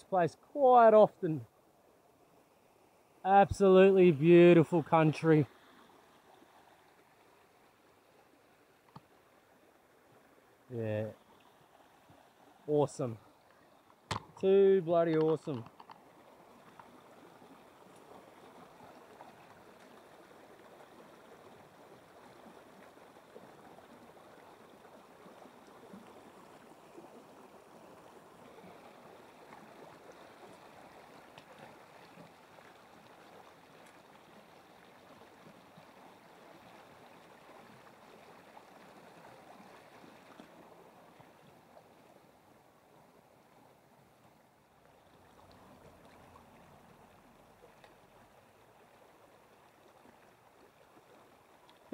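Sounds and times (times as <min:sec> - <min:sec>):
creek water flowing: 0:00.0 - 0:51.9
light ticks: 0:51.6 - 0:51.9.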